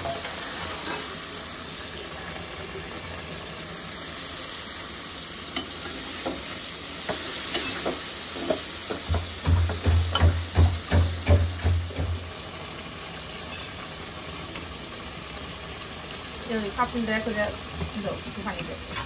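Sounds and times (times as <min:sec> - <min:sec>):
metal spatula scraping a pot: 0:00.0 - 0:01.2
curry sizzling in a pot: 0:00.0 - 0:19.0.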